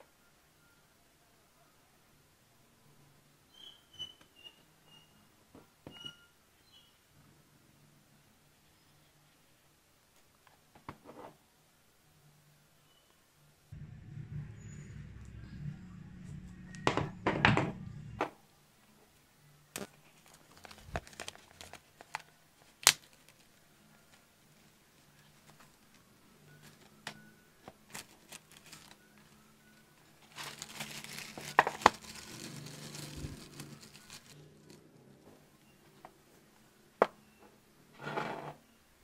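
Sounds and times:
packaging crinkling and tearing: 0:19.8 - 0:23.5, 0:27.8 - 0:29.0, 0:30.2 - 0:34.4.

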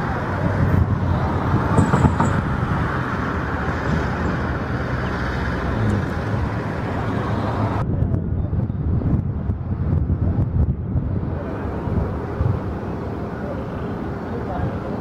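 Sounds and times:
jet engines rumbling: 0:00.0 - 0:15.0.

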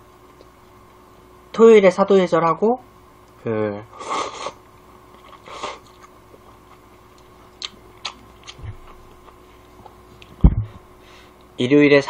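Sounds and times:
man slurping noodles: 0:04.0 - 0:04.6, 0:05.2 - 0:06.0
loud low thump: 0:10.4 - 0:10.8.

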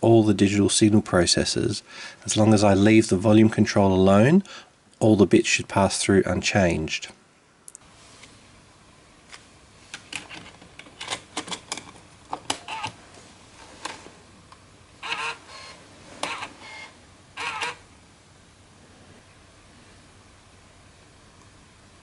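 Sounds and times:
tape mechanism buzzing whirs: 0:15.0 - 0:17.8.

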